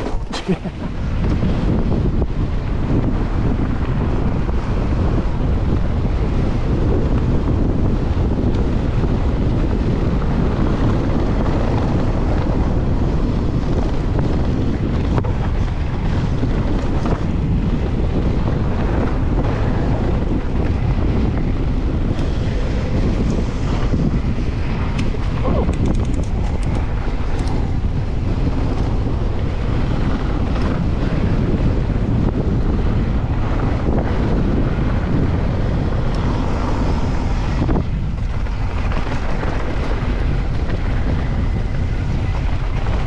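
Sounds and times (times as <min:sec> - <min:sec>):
wind rushing over microphone: 0:00.0 - 0:43.0.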